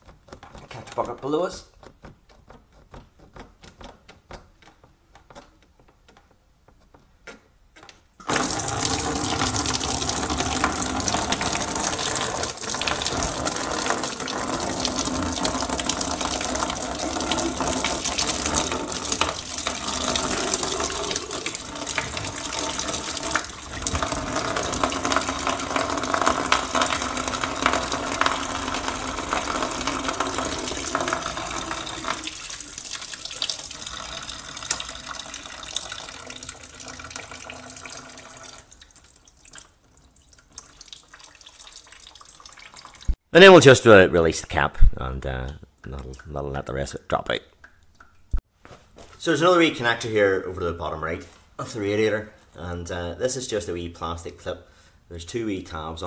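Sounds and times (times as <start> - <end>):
coolant gushing into bucket: 8.2 - 43.2.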